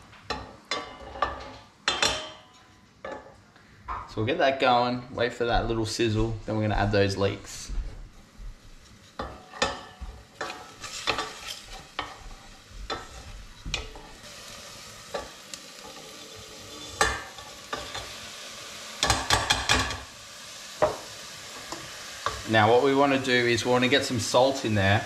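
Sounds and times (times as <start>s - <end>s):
garlic sizzling in oil: 8.4s - 25.0s
wooden spoon scraping saucepan: 10.4s - 14.2s.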